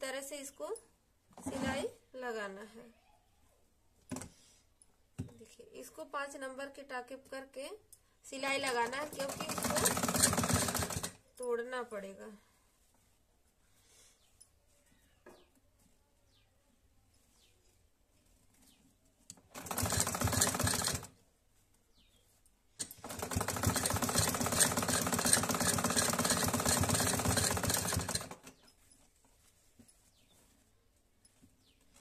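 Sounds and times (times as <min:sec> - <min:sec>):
sewing machine stitching: 0:08.6 - 0:11.2, 0:19.3 - 0:21.1, 0:22.8 - 0:28.6.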